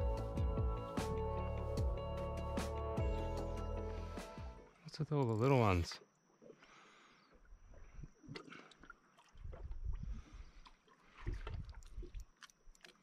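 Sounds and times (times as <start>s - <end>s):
water lapping against boat hull: 7.3s - 13.0s.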